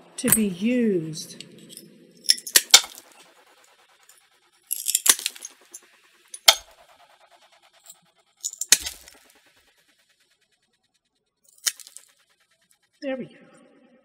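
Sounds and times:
ceramic plate cracking: 0:02.3 - 0:03.1, 0:04.7 - 0:05.5, 0:08.6 - 0:09.1, 0:11.6 - 0:12.0.

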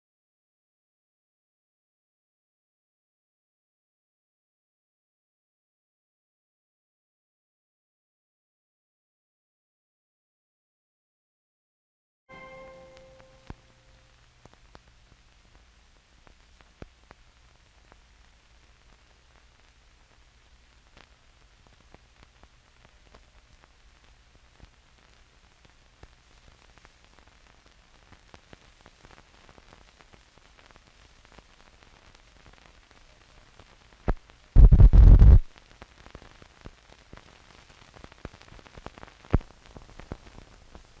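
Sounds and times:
crackle and pops: 0:12.3 - 0:41.0
film soundtrack hiss: 0:12.3 - 0:41.0
burst of noise: 0:34.1 - 0:35.5.

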